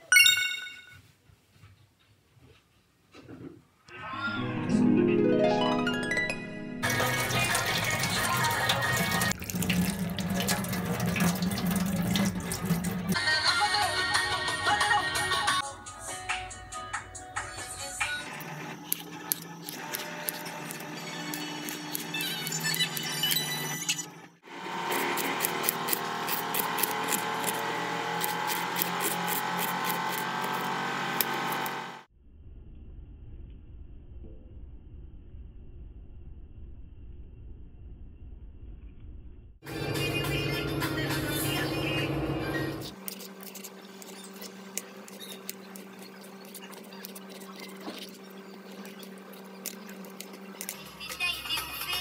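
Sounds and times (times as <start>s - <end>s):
knife slicing onion: 18.8s - 23.5s, 24.6s - 31.8s
steady hum: 39.6s - 52.0s.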